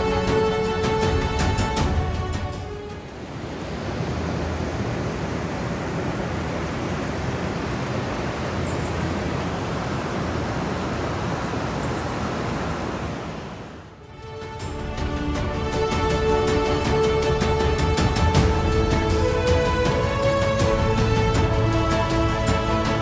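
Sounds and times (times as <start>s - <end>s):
river water rushing over rapids: 2.8s - 13.9s.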